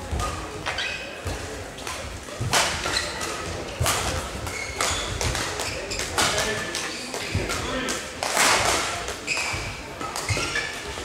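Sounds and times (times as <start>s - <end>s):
shoe squeaks on court floor: 0.6s - 1.3s, 2.7s - 3.5s, 4.5s - 7.1s, 9.2s - 11.0s
badminton racket hitting shuttlecock: 1.8s - 10.7s.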